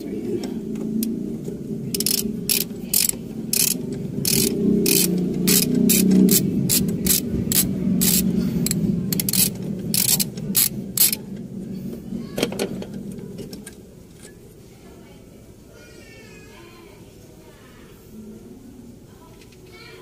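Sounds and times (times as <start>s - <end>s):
low steady hum: 0.0s - 15.8s
ratchet wrench clicking: 2.0s - 11.2s.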